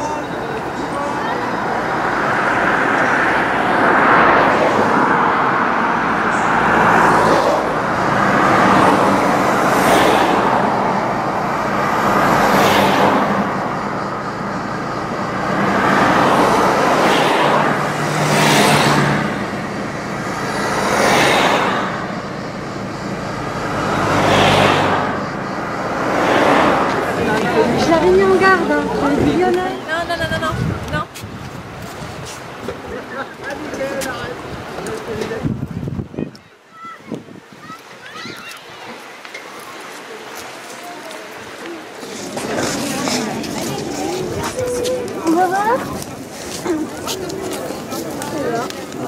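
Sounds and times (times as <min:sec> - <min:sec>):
car engine hum: 0:00.0 - 0:36.1, 0:41.2 - 0:49.0
passing vehicles swishing by: 0:00.0 - 0:49.0
tyre and wind noise: 0:26.3 - 0:49.0.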